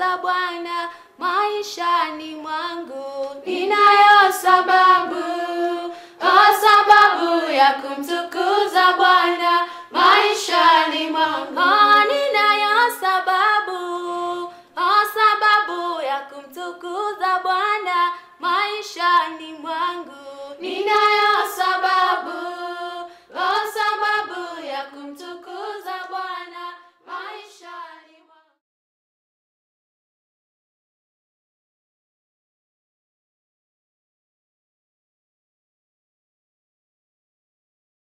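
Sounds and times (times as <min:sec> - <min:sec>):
unaccompanied singing in high voices: 0:00.0 - 0:28.5.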